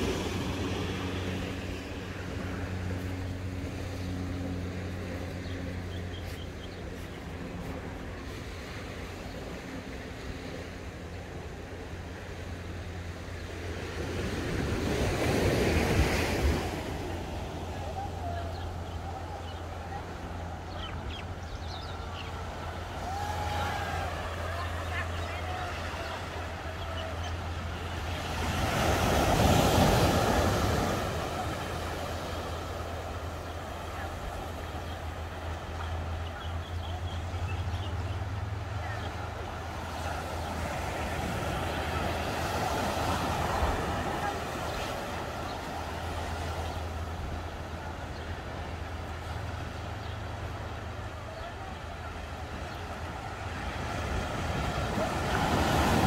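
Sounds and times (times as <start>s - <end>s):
low wind rumble: 0.0s - 42.6s
ocean surf washing on beach: 0.0s - 56.0s.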